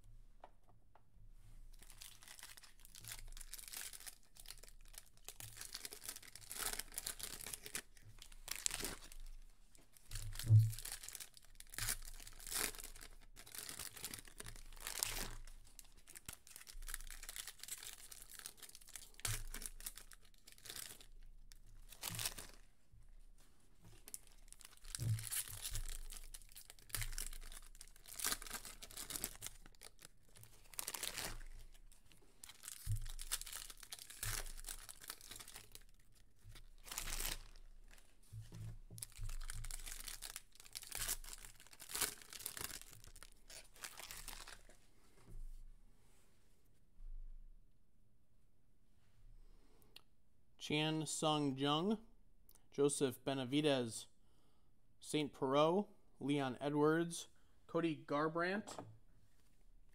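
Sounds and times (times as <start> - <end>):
foil wrappers tearing and crinkling: 1.8 - 9.3, 10.2 - 21.2, 24.1 - 38.0, 39.0 - 44.7.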